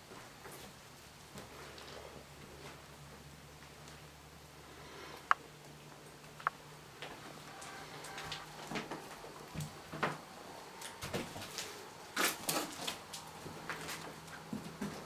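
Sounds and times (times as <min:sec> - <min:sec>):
footsteps on debris: 0:11.0 - 0:15.0.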